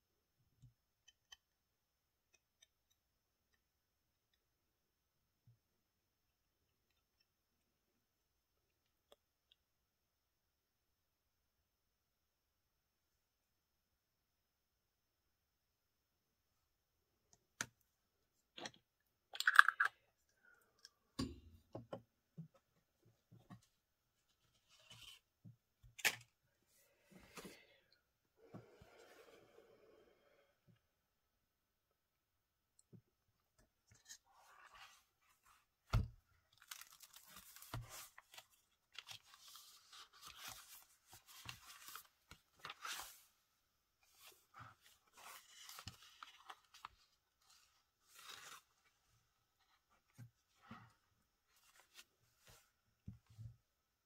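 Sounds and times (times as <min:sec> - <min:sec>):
paper rustling and crackling: 0:36.6 - 0:43.3.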